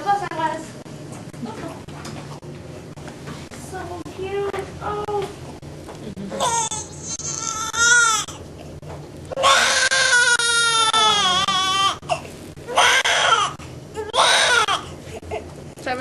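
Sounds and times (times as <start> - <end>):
newborn baby crying: 6.4 - 8.4, 9.4 - 12.1, 12.7 - 14.9.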